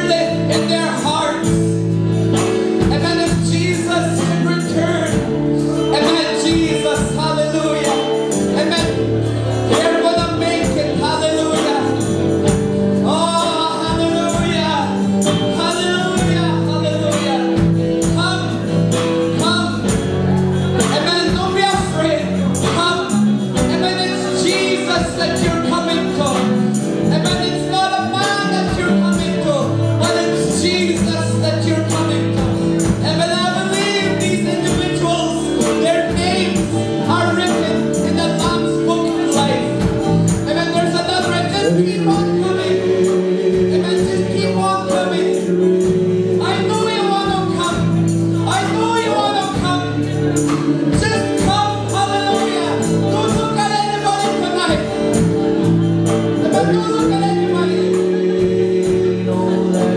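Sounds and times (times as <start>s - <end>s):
worship band playing: 0.0s - 59.9s
people singing: 19.5s - 59.9s.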